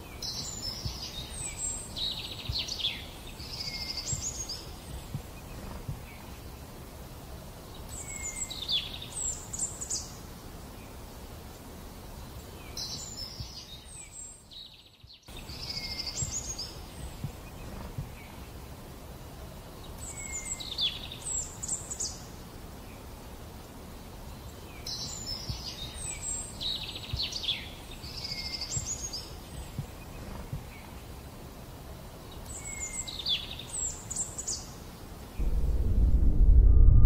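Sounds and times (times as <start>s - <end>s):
songbirds singing: 0.0s - 35.5s
steady low background noise: 0.0s - 37.0s.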